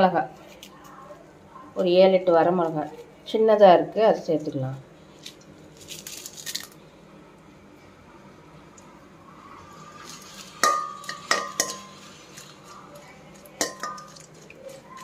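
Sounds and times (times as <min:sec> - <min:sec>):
chillies frying in hot oil: 0:04.2 - 0:06.9, 0:08.5 - 0:15.0
spatula clinking on metal pan: 0:10.6 - 0:12.0, 0:13.6 - 0:14.3.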